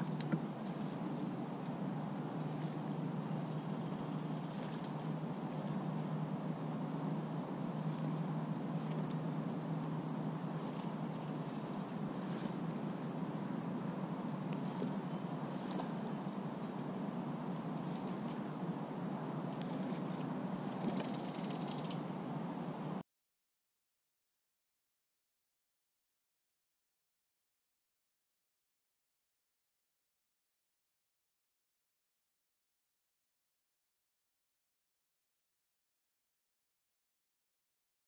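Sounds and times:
faint high whine: 0.0 - 23.0
faint high ticks: 4.1 - 5.8, 8.8 - 10.9, 19.5 - 22.9.

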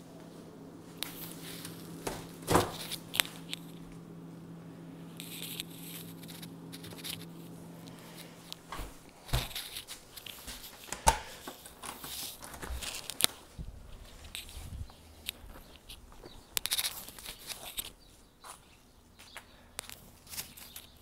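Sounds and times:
refrigerator humming: 0.0 - 21.0
fridge door shutting thud: 1.2 - 3.5, 8.7 - 9.7, 10.9 - 11.4.

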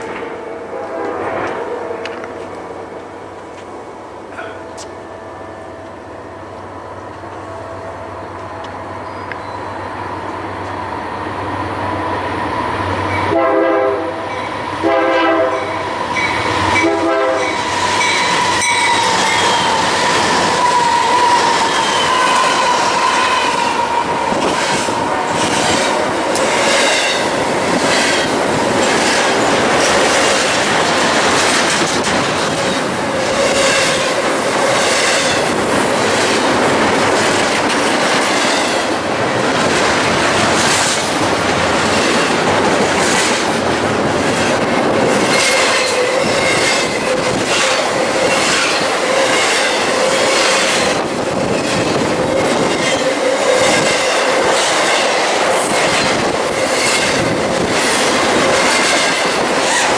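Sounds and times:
freight train rumbling and rattling: 0.0 - 59.9
high-pitched wheel squeal: 17.4 - 25.0.

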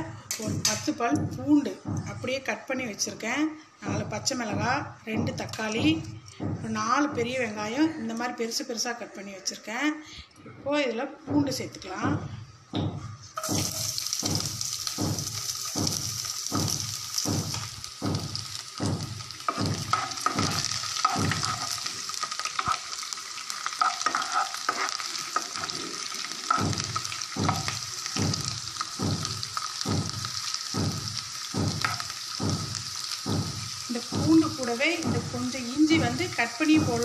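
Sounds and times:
garlic sizzling in oil: 13.4 - 37.0
spatula scraping pan: 19.4 - 27.8.

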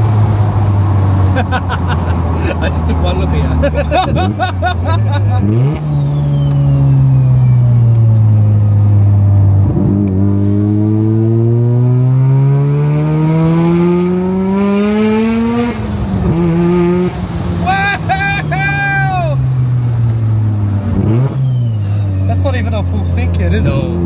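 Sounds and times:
rotary engine revving: 3.2 - 7.4, 9.5 - 17.6, 20.3 - 21.9.

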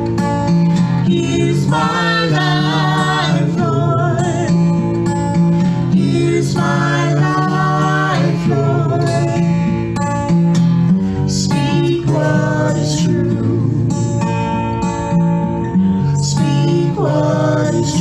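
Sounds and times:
acoustic guitar strumming: 0.0 - 18.0
man and woman singing: 0.9 - 4.8, 5.7 - 9.7, 11.2 - 14.2, 16.1 - 18.0.

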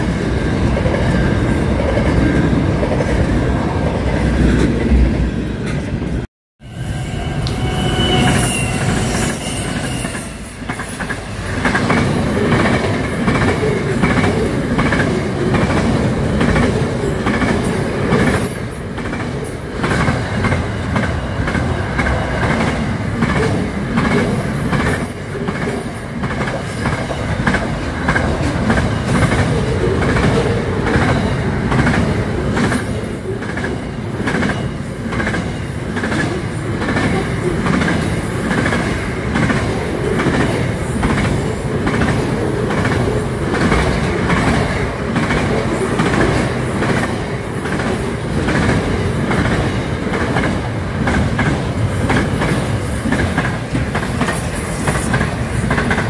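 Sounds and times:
high wheel squeal: 6.6 - 11.0.

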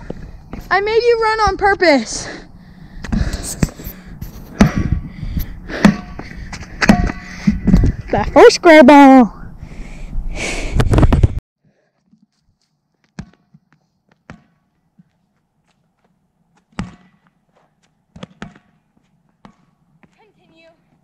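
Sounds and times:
ball bouncing on asphalt: 4.6 - 4.9, 5.8 - 8.0, 13.0 - 20.6.

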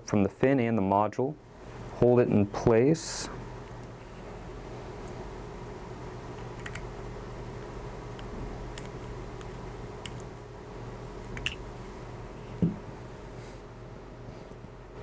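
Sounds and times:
steady low hum: 0.0 - 15.0
dull thump: 12.6 - 12.8.

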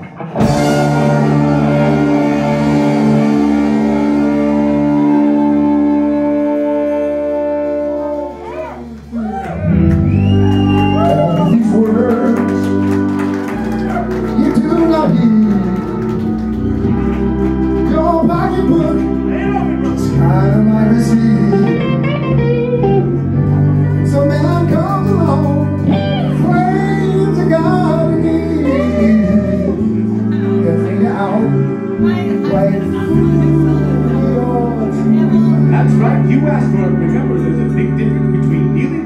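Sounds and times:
rock band with horns playing: 0.0 - 39.0.

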